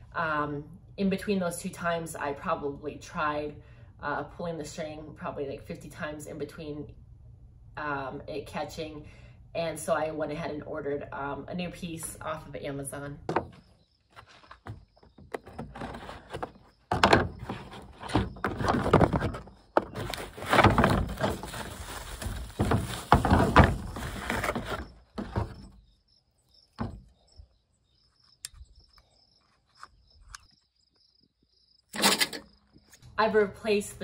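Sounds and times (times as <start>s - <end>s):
bubble wrap crinkling: 20.0s - 24.8s.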